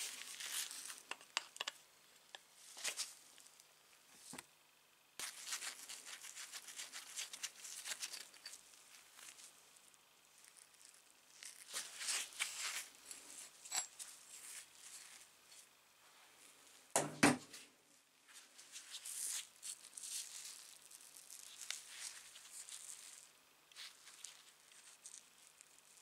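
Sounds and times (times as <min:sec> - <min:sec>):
gloved hands rustling: 0:05.2 - 0:15.7, 0:18.2 - 0:26.0.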